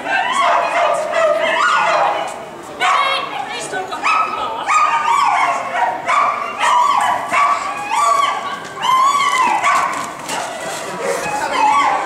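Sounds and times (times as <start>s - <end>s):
dog barking in high yips: 0.2s - 3.2s, 4.0s - 10.2s.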